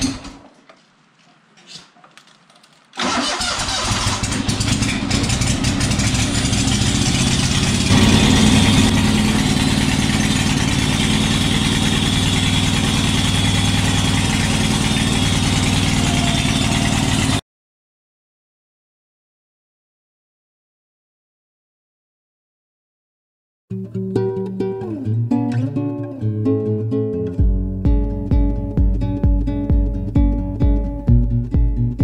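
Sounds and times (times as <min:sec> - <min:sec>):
garden tractor engine running: 0:03.0 - 0:17.4.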